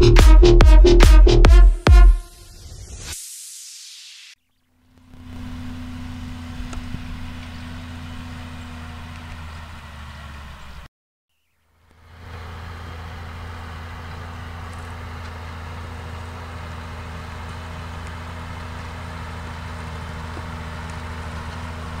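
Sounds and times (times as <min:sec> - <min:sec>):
tractor diesel engine under load: 0:04.9 - 0:10.9, 0:11.8 - 0:22.0.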